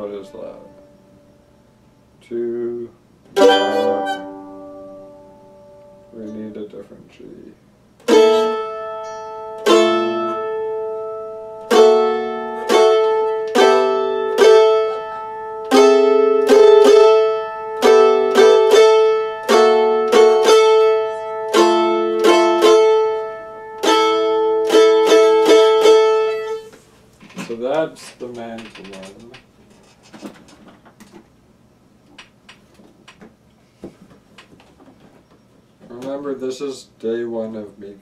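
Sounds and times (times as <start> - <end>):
mandolin chords: 3.3 - 6.6, 8.0 - 26.7.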